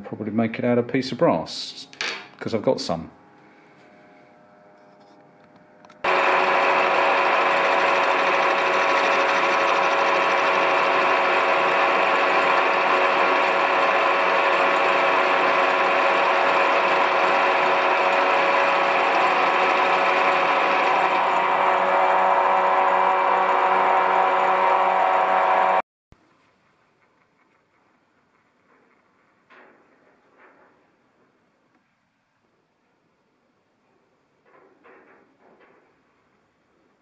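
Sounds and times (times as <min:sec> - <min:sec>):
milling machine whine: 0:05.8 - 0:25.8.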